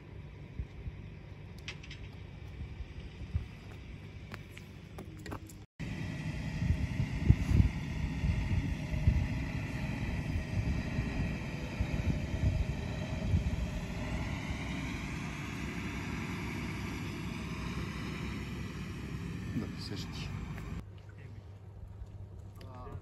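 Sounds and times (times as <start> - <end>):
faint multi-tone whine: 0.0 - 20.8
wind buffeting microphone: 2.1 - 4.4, 6.4 - 18.9.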